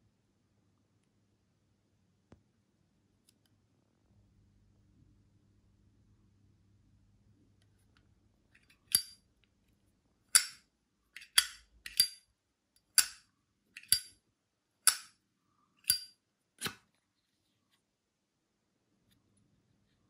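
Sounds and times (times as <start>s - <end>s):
lighter lid clicking open and shut: 8.9s - 9.2s, 10.3s - 10.6s, 11.2s - 12.2s, 13.0s - 13.2s, 13.8s - 14.1s, 14.8s - 15.1s, 15.8s - 16.8s.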